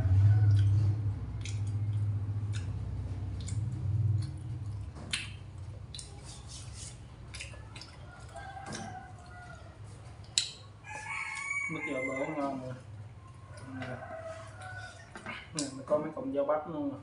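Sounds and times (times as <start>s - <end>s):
crisp chewing crunches: 0.4s - 11.6s.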